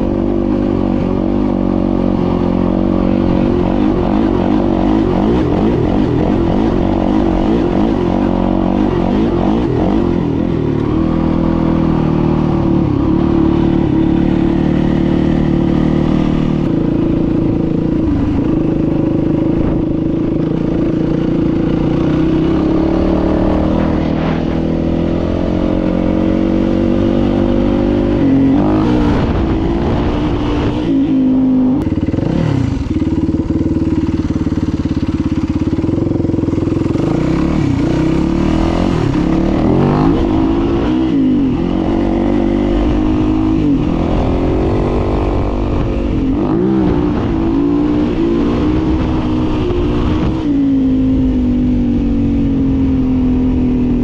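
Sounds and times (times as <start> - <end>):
dirt bike engine revving: 0.0 - 54.0
motorcycle engine idling: 31.8 - 37.5.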